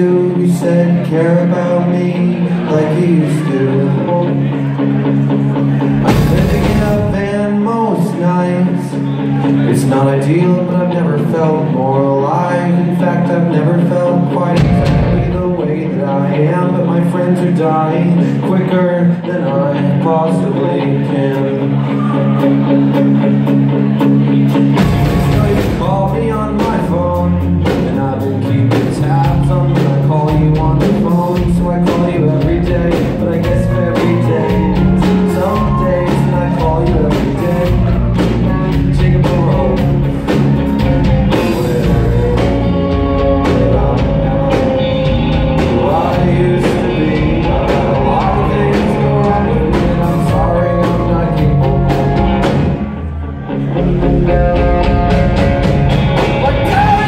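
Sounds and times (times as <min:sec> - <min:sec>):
bass guitar: 0:00.0 - 0:57.0
electric guitars: 0:00.0 - 0:57.0
drum kit: 0:04.0 - 0:08.0, 0:14.0 - 0:16.0, 0:22.0 - 0:53.0, 0:53.6 - 0:57.0.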